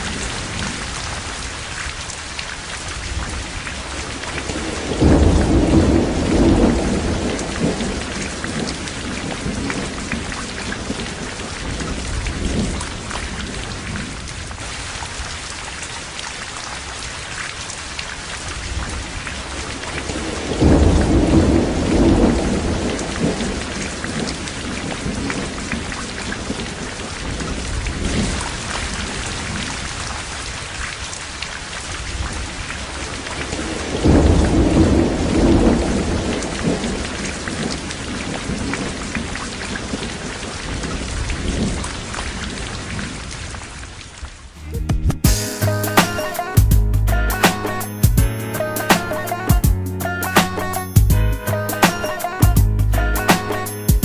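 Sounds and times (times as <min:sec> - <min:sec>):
rain hissing: 0:00.0 - 0:15.6, 0:17.1 - 0:30.8, 0:45.3 - 0:54.0
thunder rumbling: 0:04.4 - 0:14.2, 0:20.0 - 0:25.9, 0:33.4 - 0:39.2.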